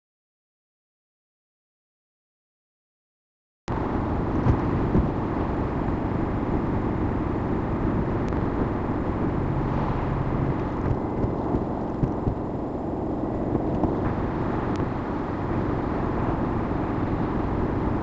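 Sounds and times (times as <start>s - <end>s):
tyres and engine drone: 3.7s - 18.0s.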